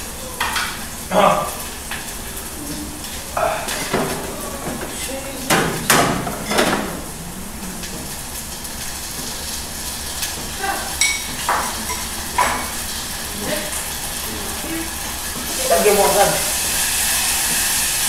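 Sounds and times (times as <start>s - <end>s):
dishes knocking on countertop: 5.5s - 7.0s, 10.4s - 12.8s
low hum: 6.8s - 9.5s.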